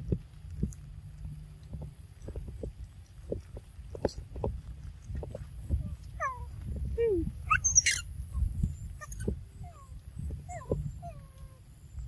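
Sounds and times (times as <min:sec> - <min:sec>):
low rumble: 0:00.0 - 0:12.0
macaques squeaky calls: 0:07.5 - 0:08.0, 0:09.0 - 0:09.3.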